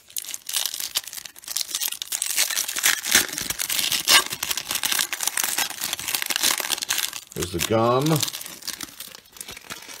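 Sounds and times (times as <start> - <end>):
wrapper tearing and crinkling: 0.0 - 10.0.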